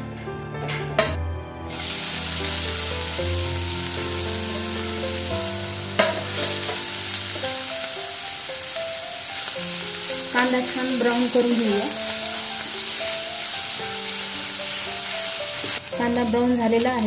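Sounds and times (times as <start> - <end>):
soft background music: 0.0 - 17.0
onions sizzling in oil: 1.7 - 17.0
spatula knock: 6.0 - 6.8.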